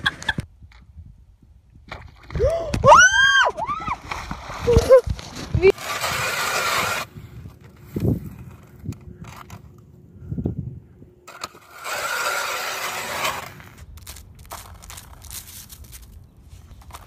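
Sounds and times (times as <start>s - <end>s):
ice auger grinding: 5.7s - 8.6s, 11.3s - 16.0s.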